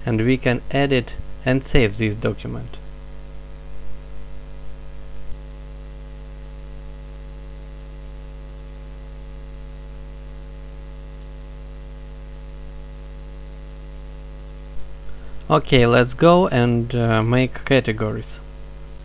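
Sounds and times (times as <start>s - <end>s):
faint hiss: 0.0s - 2.9s, 14.6s - 19.0s
electrical mains hum: 0.0s - 19.0s.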